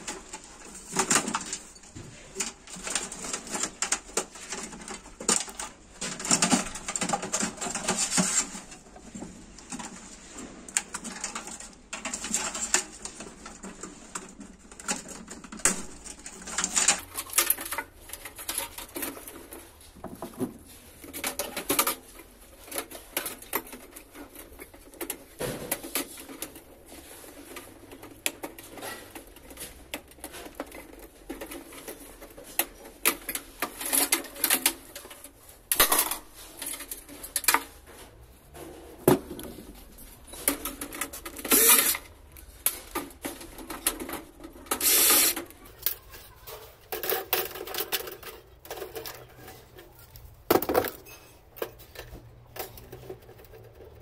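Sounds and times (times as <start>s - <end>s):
clicks and rattles of computer parts: 0.0s - 54.0s.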